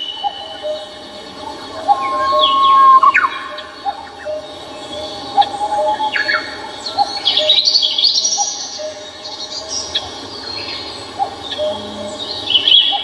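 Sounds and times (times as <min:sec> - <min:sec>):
birds twittering and trilling: 0:00.0 - 0:13.0
short lower bird call: 0:01.4 - 0:04.0.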